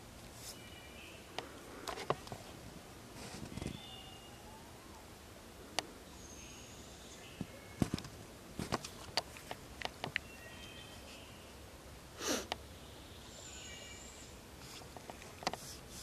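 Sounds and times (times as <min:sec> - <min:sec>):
faint songbird whistling: 0:03.6 - 0:04.7.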